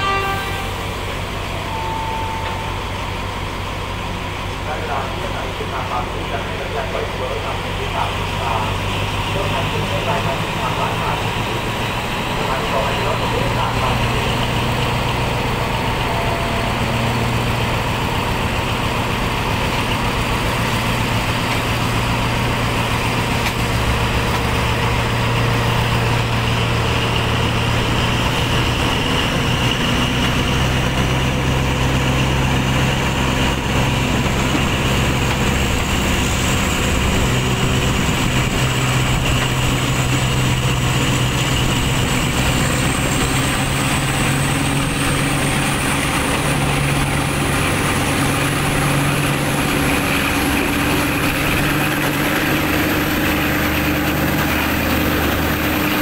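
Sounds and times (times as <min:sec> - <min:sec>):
train engine drone: 0:00.0 - 0:56.0
faint high whine: 0:01.5 - 0:02.9
wheel and track noise: 0:02.4 - 0:56.0.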